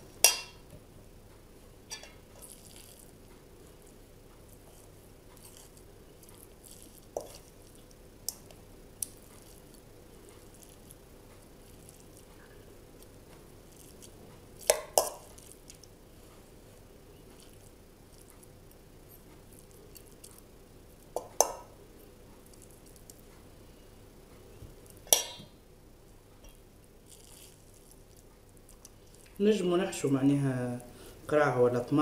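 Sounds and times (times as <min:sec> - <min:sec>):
metal spoon clinking steel bowl: 0:01.9 - 0:02.2.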